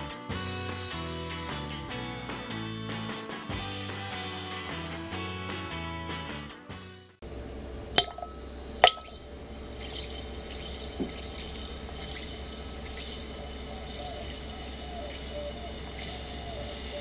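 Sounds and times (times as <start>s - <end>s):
objects clinking into glass: 8.0s - 9.1s
water fizzing and crackling: 8.0s - 17.0s.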